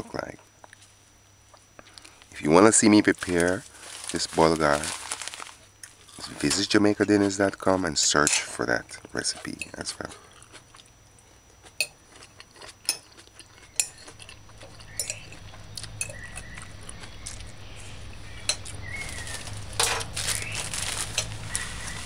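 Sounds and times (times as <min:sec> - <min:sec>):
low steady hum: 0:00.0 - 0:22.0
fork clinking on ceramic plate: 0:12.8 - 0:15.4.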